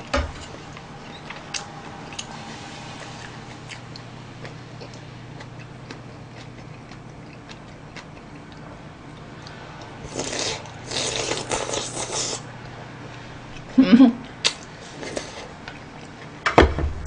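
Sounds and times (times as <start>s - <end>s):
low steady hum: 0.0s - 17.0s
slurping noodles: 10.0s - 12.5s.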